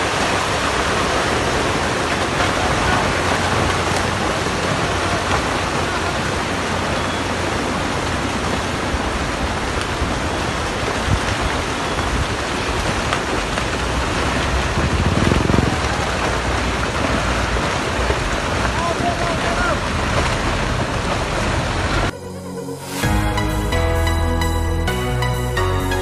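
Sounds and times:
rocks pouring down hillside: 0.0 - 22.1.

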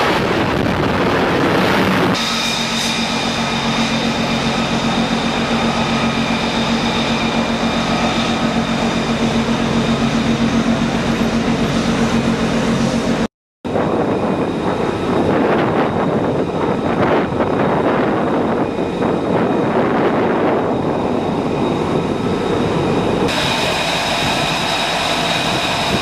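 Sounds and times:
jet engine roaring: 0.0 - 26.0
whining engine tones: 0.0 - 26.0.

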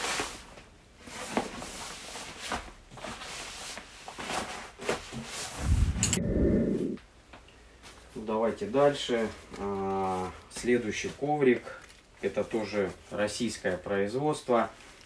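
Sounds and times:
low handling rumble: 5.6 - 7.0.

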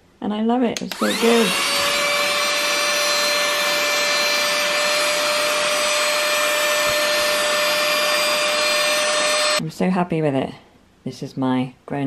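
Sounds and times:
handheld vacuum cleaner running: 0.9 - 9.6.

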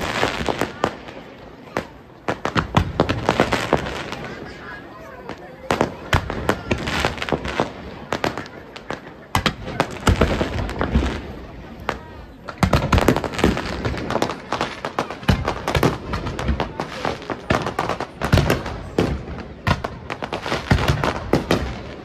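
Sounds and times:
fireworks bangs and pops: 0.0 - 22.0.

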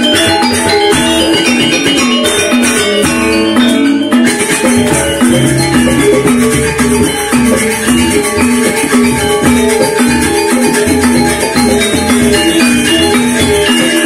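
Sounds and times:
hand-played barrel drum: 0.0 - 14.0
metallophones playing fast melody: 0.0 - 14.0.

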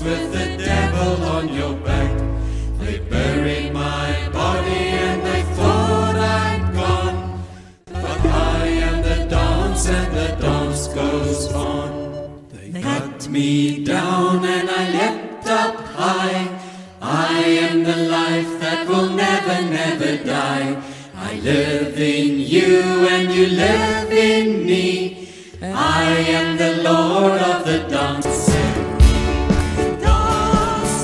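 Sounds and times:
church singers singing a hymn: 0.0 - 31.0
band playing: 3.2 - 12.6, 28.2 - 31.0.

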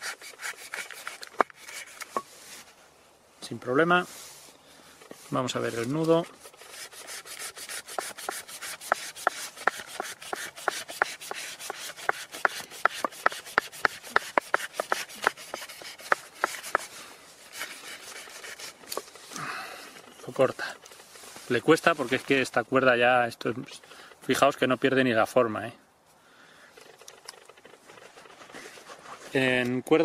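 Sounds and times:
knife sawing through rope: 0.0 - 2.2, 5.7 - 19.0.

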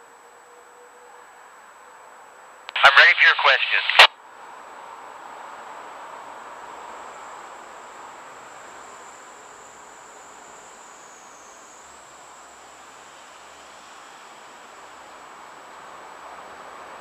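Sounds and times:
radio static hiss: 2.7 - 4.1.

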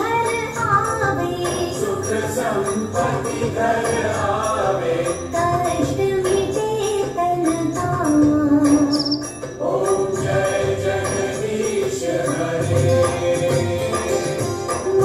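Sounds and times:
jingling percussion: 0.0 - 15.0
voices singing a hymn: 1.3 - 6.5, 8.7 - 15.0.

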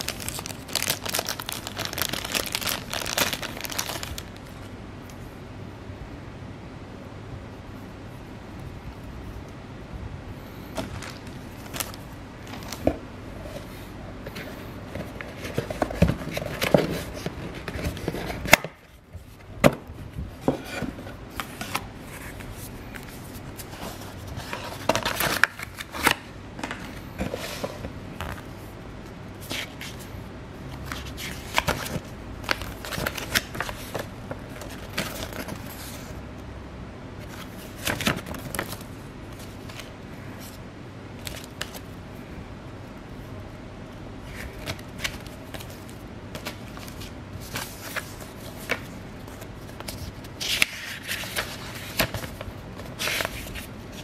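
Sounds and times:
cardboard and plastic packaging rustling: 0.0 - 4.6, 10.7 - 28.6, 30.8 - 36.2, 44.2 - 54.0.

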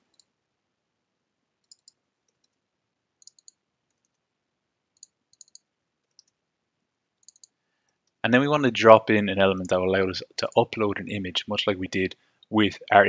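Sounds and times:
computer mouse clicks: 0.1 - 0.3, 1.6 - 2.6, 3.2 - 4.2, 5.0 - 6.4, 7.2 - 8.2
keyboard typing: 1.6 - 2.6, 3.2 - 4.2, 5.0 - 6.4, 7.2 - 7.6.

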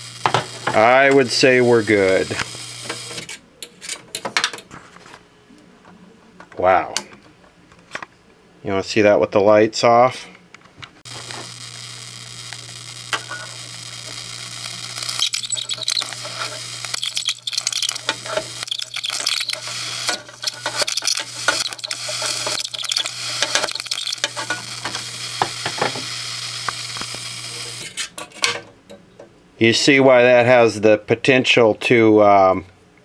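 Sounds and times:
electric arc crackling: 0.0 - 3.4, 11.1 - 28.2.

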